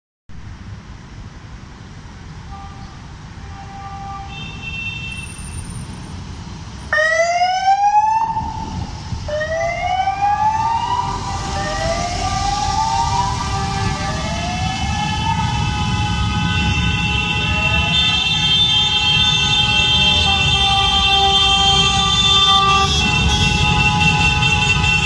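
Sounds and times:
police siren wailing: 6.9s - 25.0s
motorcycle engines rumbling: 8.2s - 25.0s.

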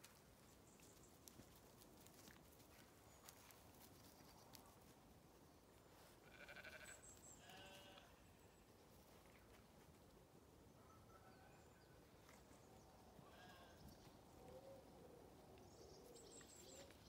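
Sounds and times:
sheep bleating faintly: 6.2s - 8.2s.

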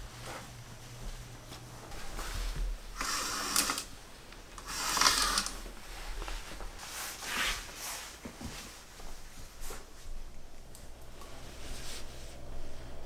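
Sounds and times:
curtain fabric swishing: 4.7s - 10.0s, 11.3s - 12.9s.

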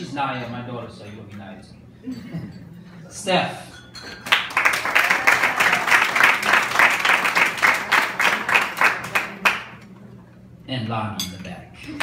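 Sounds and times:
audience applauding: 4.2s - 9.8s.

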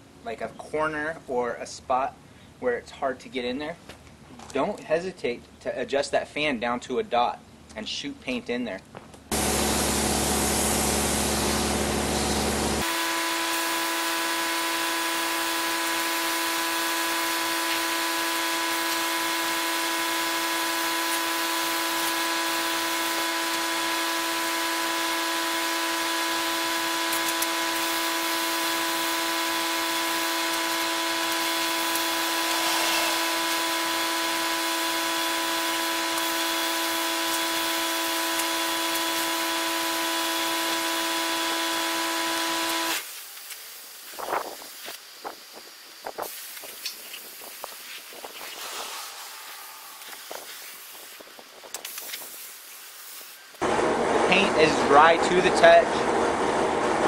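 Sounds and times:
constant whine: 9.1s - 57.0s
paint spray gun hissing: 9.3s - 53.6s.

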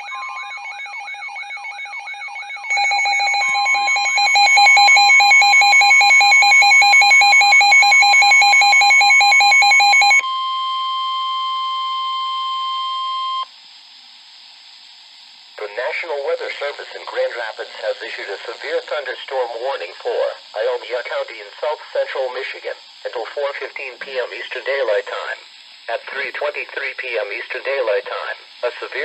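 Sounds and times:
rapid electronic beeping: 0.0s - 10.2s
loud pulsed beeping: 0.0s - 13.5s
steady warning tone: 0.0s - 13.5s
warbling alarm: 0.0s - 13.5s
faint radio hiss: 14.5s - 29.0s.

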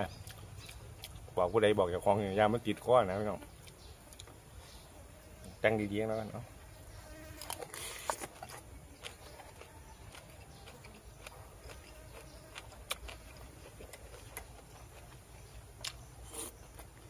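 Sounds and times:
chewing clicks and smacks: 0.1s - 1.4s, 7.4s - 17.0s.

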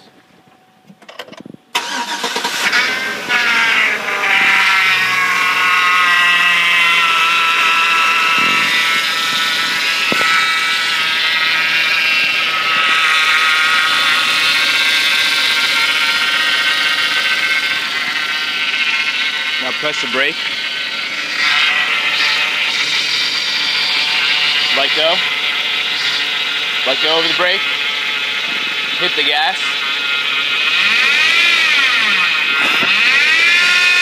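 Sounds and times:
loud steady belt whine: 0.0s - 34.0s
engine starting and idling: 1.7s - 25.2s.

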